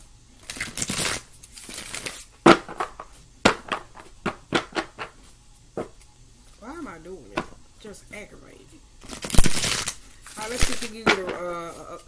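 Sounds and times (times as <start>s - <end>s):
cards rustling: 0.5s - 3.1s, 9.0s - 12.0s
cards tapping together: 0.5s - 5.2s.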